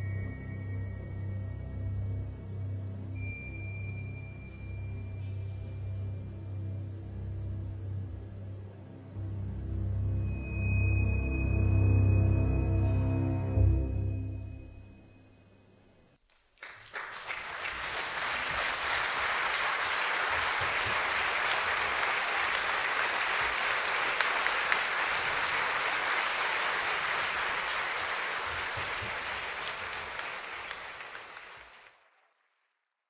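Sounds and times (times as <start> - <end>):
audience applauding: 16.3 - 32.7.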